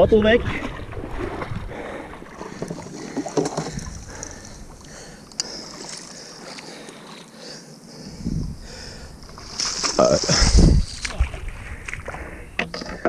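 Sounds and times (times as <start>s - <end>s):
paddles knocking: 1.2s - 6.1s, 9.3s - 13.0s.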